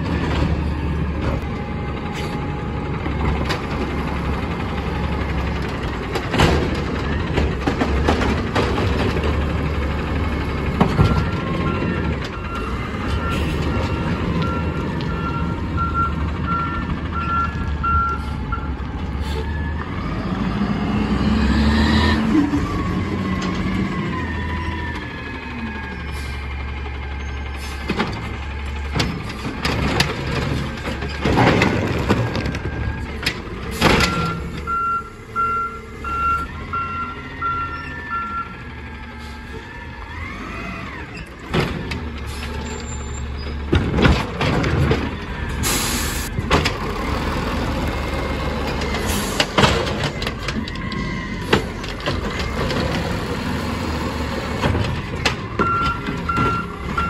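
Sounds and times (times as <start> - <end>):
cart clanking and banging: 0.0 - 25.2, 26.0 - 35.0, 38.7 - 57.0
beeping warning alarm: 34.0 - 38.7
garbage truck idling: 40.9 - 57.0.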